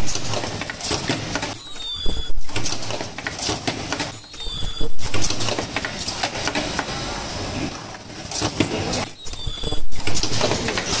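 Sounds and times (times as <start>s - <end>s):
high-pitched squeal: 0.0s - 5.1s
machines clicking and clattering: 0.0s - 6.9s.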